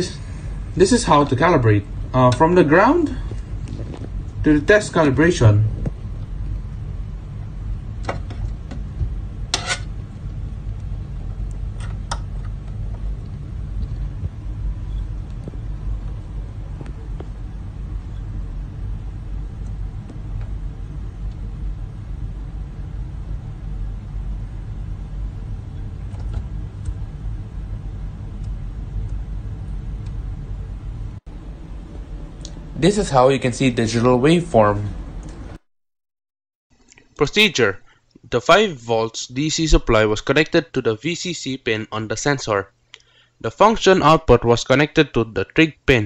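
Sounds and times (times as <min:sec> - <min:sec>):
steady low rumble: 0:00.0 - 0:35.6.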